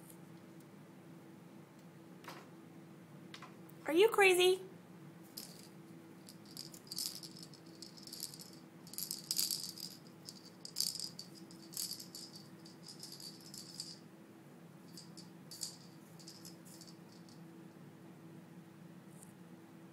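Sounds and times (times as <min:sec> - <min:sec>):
faint low hum: 0:00.0 - 0:19.9
rattle toy rattling: 0:05.3 - 0:14.0, 0:14.9 - 0:17.4.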